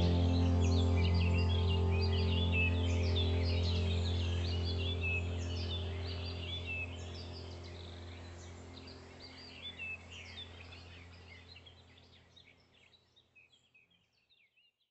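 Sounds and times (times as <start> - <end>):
steady low drone: 0.0 - 11.8
small birds chirping: 0.0 - 14.8.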